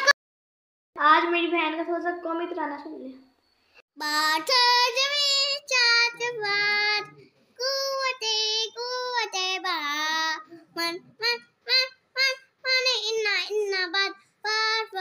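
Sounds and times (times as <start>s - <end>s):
girl singing unaccompanied: 4.0s - 15.0s.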